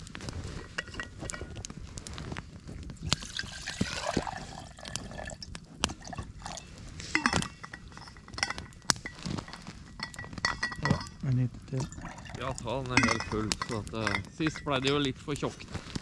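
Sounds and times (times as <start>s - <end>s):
liquid pouring into cookware: 3.2s - 5.4s, 6.0s - 6.7s, 11.7s - 14.2s
metal cookware clinking: 6.4s - 15.1s.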